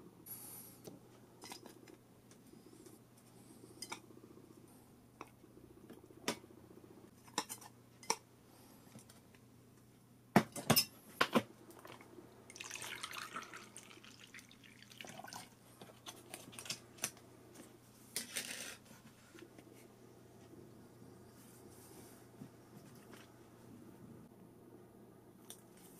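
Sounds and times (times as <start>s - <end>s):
tea pouring over ice: 12.5s - 15.6s.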